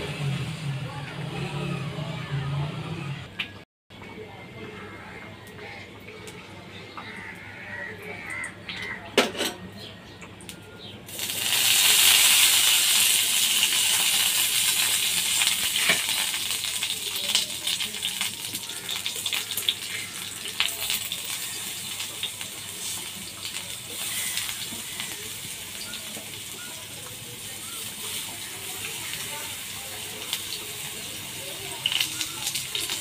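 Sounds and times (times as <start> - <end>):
oil crackling and spitting: 11.1 - 26.4, 27.0 - 33.0
hot oil sizzling in a pan: 11.1 - 33.0.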